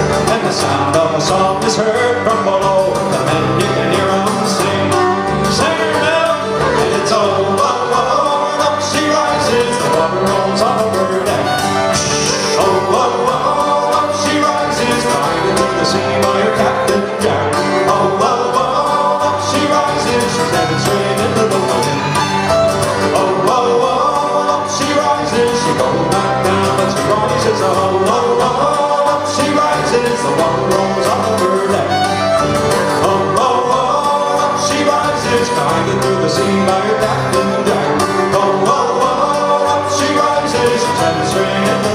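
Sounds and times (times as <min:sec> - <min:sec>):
electric bass guitar: 0:00.0 - 0:41.9
fiddle bowing: 0:00.0 - 0:41.9
strummed acoustic guitars: 0:00.0 - 0:41.9.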